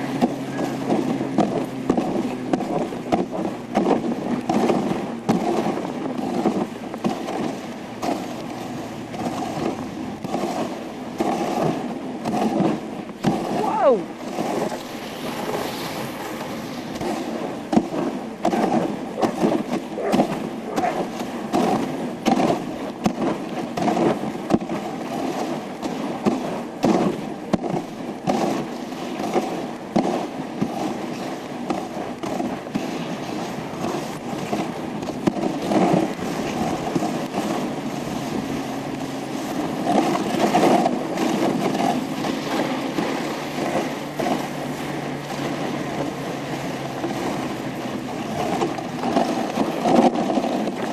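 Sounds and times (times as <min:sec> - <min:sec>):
sled knocking and clattering: 0:00.0 - 0:15.7, 0:16.3 - 0:46.2, 0:47.0 - 0:50.9
sled runners scraping on snow: 0:00.0 - 0:50.9.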